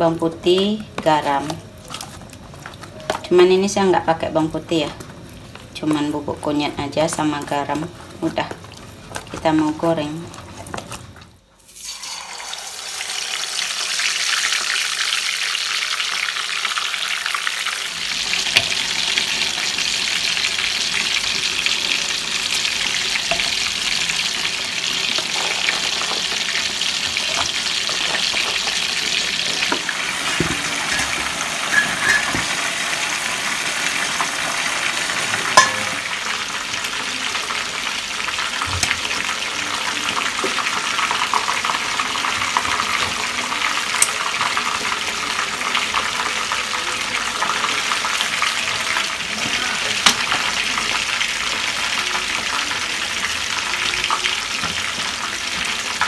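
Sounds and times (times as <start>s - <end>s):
fish sizzling in hot oil: 7.2s - 56.0s
tap water running: 11.7s - 15.2s, 23.0s - 36.3s.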